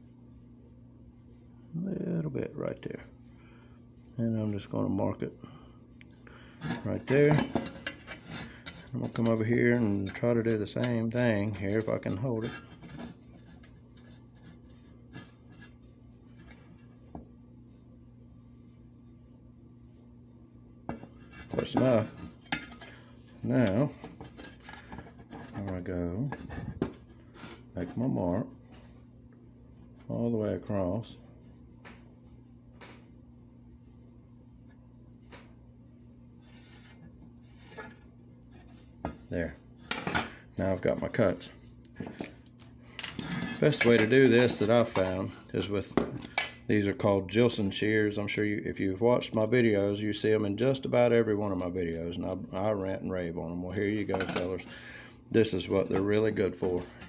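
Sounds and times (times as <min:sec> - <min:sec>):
steady low hum: 0:00.0 - 0:57.0
tool scratching on metal: 0:06.6 - 0:16.7.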